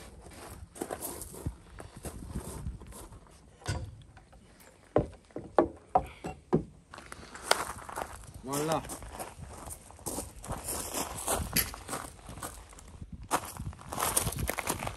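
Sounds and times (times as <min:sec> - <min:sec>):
wooden knocks on deck boards: 0:04.9 - 0:06.8.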